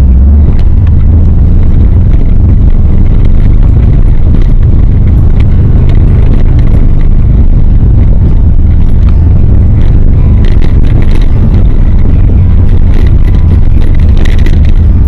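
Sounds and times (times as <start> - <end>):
car engine and tyres rumbling: 0.0 - 15.0
light gravel ticks: 7.9 - 15.0.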